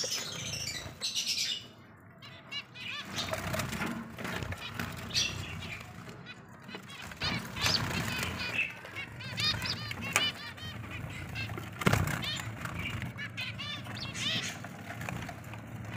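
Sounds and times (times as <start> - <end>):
finches chirping: 0.0 - 3.6, 4.3 - 14.8.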